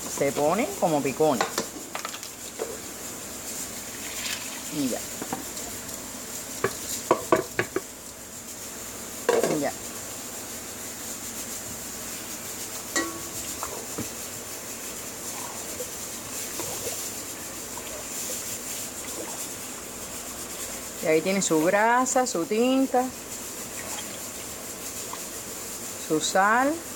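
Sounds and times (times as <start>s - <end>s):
spoon stirring rice in pot: 12.7s - 22.0s
spoon clinking against pot: 12.9s - 13.4s.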